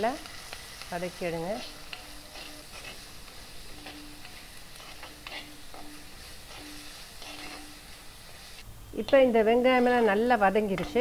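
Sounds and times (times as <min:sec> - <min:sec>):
vegetables sizzling in hot oil: 0:00.0 - 0:11.0
spatula scraping clay pot: 0:01.6 - 0:07.7.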